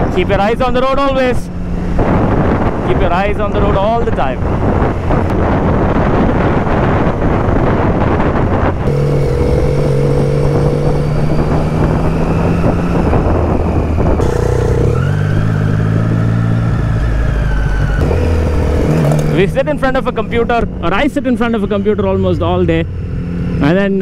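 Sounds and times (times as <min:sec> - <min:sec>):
wind rushing over microphone: 0:00.0 - 0:24.0
motorcycle engine exhaust note: 0:04.4 - 0:21.8.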